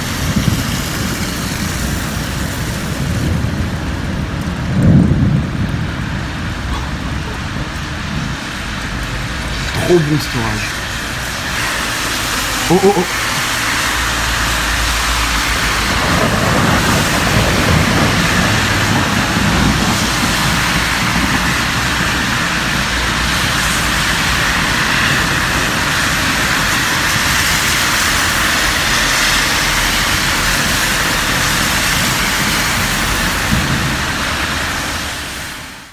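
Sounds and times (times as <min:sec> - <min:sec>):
wind rumbling on microphone: 0:00.0 - 0:09.7, 0:10.7 - 0:35.5
heavy rain pouring: 0:00.0 - 0:35.9.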